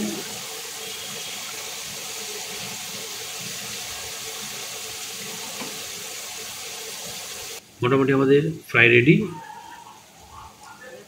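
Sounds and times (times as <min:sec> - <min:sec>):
chicken sizzling in hot oil: 0:00.0 - 0:07.6.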